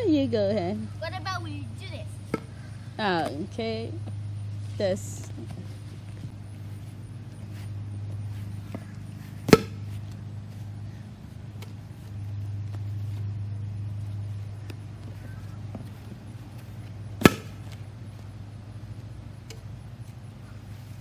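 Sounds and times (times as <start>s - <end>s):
steady low hum: 0.0s - 21.0s
stomp rocket pop: 9.4s - 9.9s, 17.2s - 17.8s.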